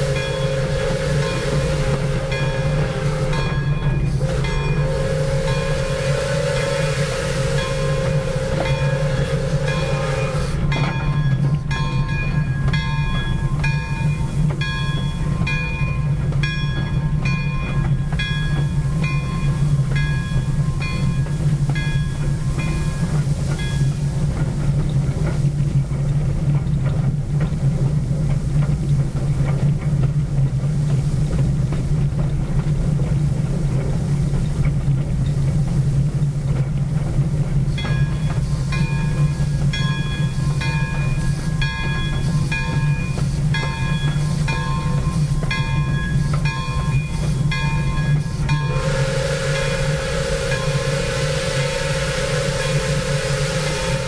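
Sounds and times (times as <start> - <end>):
locomotive bell ringing: 0.0 - 24.2, 37.7 - 54.0
steam locomotive rumbling: 0.0 - 54.0.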